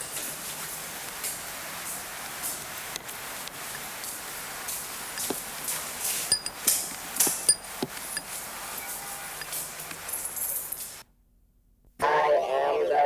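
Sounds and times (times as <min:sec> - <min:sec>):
steady hiss: 0:00.0 - 0:11.1
high metallic clinks: 0:06.2 - 0:08.4.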